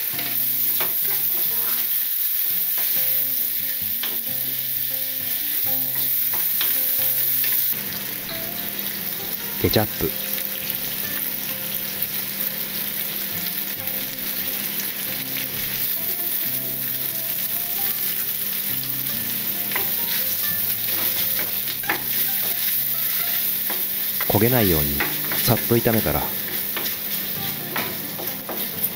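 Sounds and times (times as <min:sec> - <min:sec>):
food sizzling in a frying pan: 0:00.0 - 0:28.9.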